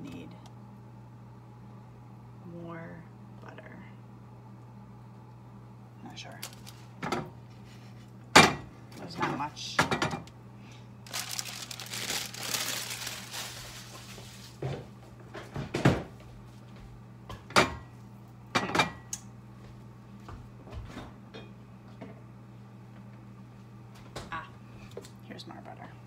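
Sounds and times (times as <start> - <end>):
steady low hum: 0.0 - 26.0
plastic sheet crinkling: 6.3 - 6.9, 11.0 - 14.6
kitchenware and cupboards clattering: 8.4 - 10.3, 17.4 - 17.9, 18.5 - 19.1.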